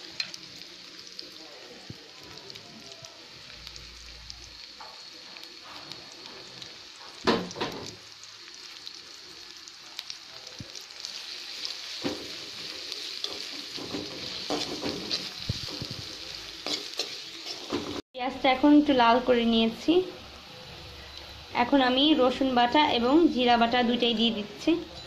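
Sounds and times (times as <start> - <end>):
onions sizzling in hot oil: 0.0 - 25.0
spatula scraping and stirring: 11.6 - 18.0.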